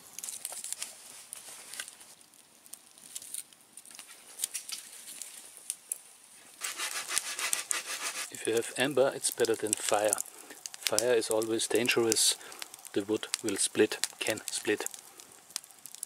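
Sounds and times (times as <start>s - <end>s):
embers crackling and clicking: 0.0s - 16.0s
rustling scrape: 0.2s - 2.2s, 6.4s - 8.4s.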